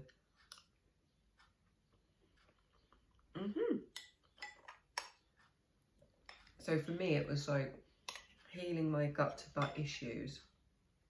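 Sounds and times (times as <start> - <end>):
person humming: 3.3 - 4.0.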